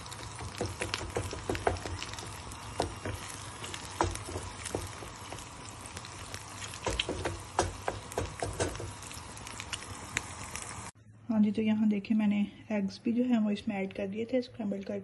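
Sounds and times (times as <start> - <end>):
eggs sizzling in a frying pan: 0.0 - 11.0.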